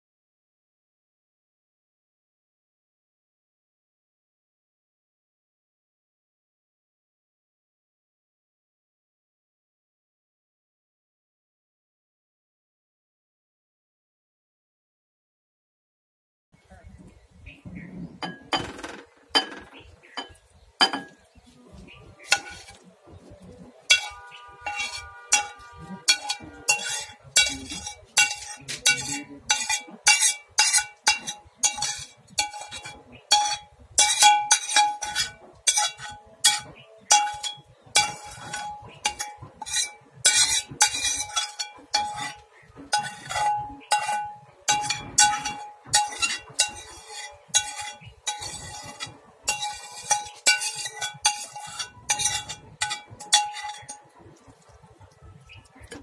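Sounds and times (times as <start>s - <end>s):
spoon clinking against bowl: 19.4s - 21.2s, 22.2s - 22.8s, 23.8s - 54.6s.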